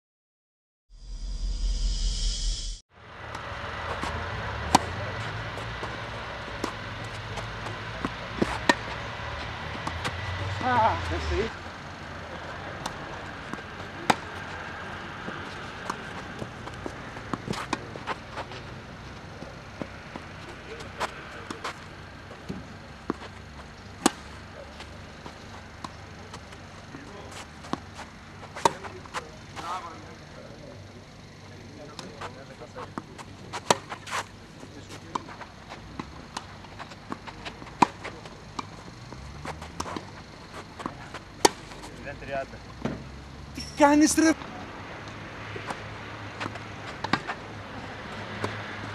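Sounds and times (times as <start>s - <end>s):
racket hitting tennis ball: 3.4s - 11.4s, 12.8s - 29.1s, 33.5s - 34.3s, 35.1s - 41.8s, 46.4s - 47.4s, 48.0s - 48.9s
tennis ball bouncing: 3.4s - 12.0s, 12.8s - 28.9s, 33.5s - 34.2s, 35.0s - 41.8s, 45.0s - 47.4s, 48.0s - 48.9s
distant ball hits and bounces: 4.0s - 10.9s.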